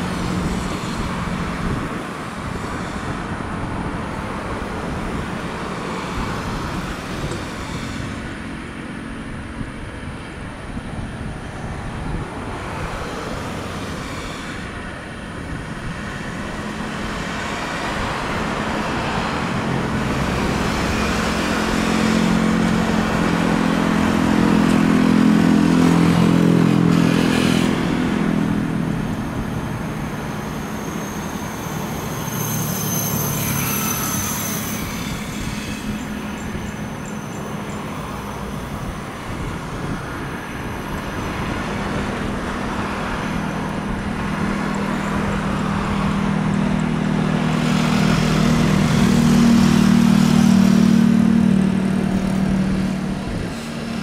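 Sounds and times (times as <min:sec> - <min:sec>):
tractor engine humming: 0:00.0 - 0:54.0
brief high whine: 0:30.4 - 0:37.3.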